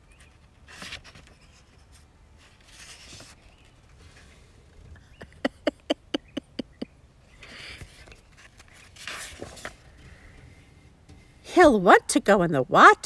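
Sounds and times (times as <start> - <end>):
book page turning: 0.4 - 4.4, 7.7 - 9.9.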